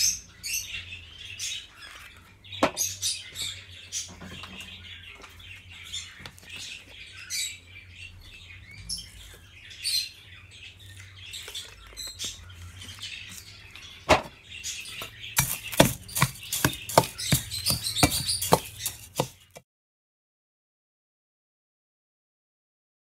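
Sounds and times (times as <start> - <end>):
songbirds chirping: 0.0 - 19.6
hands mixing seed in steel basin: 14.8 - 19.6.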